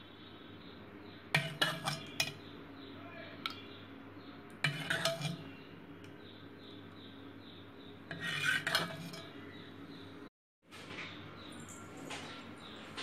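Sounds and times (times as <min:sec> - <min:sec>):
metal ladle scraping a pot: 0:01.3 - 0:02.5, 0:04.6 - 0:05.7, 0:08.0 - 0:09.5.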